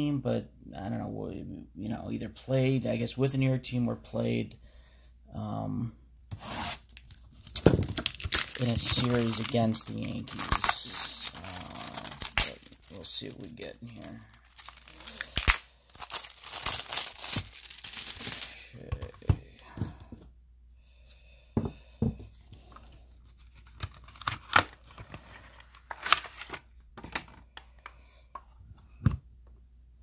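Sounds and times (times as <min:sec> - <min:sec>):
wrapping tearing and crinkling: 0:06.6 - 0:18.7.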